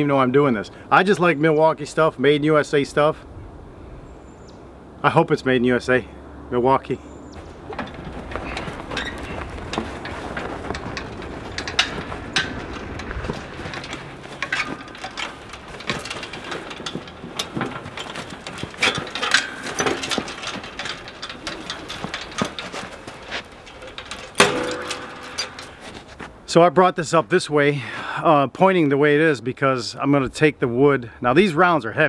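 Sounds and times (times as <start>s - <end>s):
footsteps in snow: 7.4s - 20.6s
chain and steel frame rattling: 7.4s - 26.2s.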